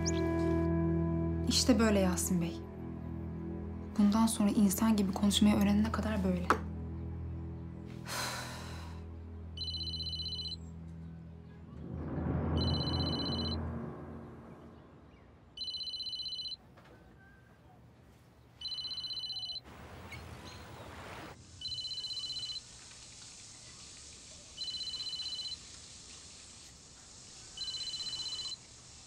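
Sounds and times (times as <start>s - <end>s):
two-tone phone ringtone: 9.6s - 10.6s, 12.6s - 13.6s, 15.6s - 16.6s, 18.6s - 19.6s, 21.6s - 22.6s, 24.6s - 25.6s, 27.6s - 28.6s.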